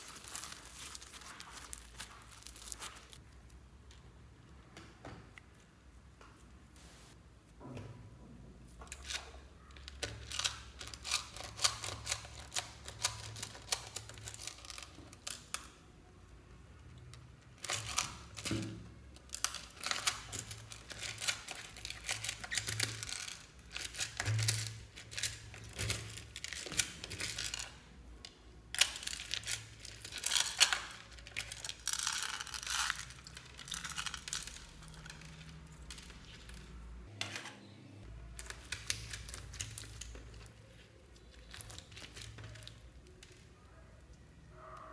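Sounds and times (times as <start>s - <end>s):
plastic beads clicking and crackling: 0.0s - 3.3s, 8.9s - 15.9s, 17.1s - 36.9s, 38.3s - 43.6s.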